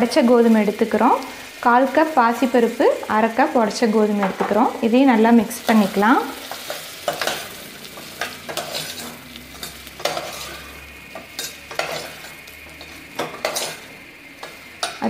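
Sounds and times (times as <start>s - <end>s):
food sizzling in a pot: 0.0s - 15.0s
spoon scraping and clinking on pot: 6.4s - 13.8s.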